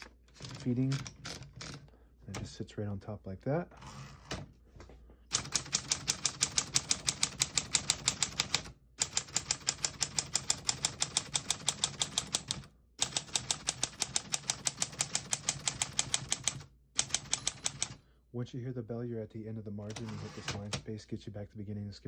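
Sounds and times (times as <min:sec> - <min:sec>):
typewriter keystrokes: 0:00.0 - 0:01.8, 0:05.3 - 0:17.9, 0:19.9 - 0:20.8.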